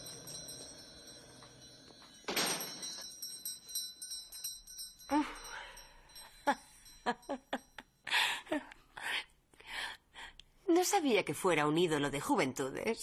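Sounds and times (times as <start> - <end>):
shop door bell jingling: 0.0 - 8.0.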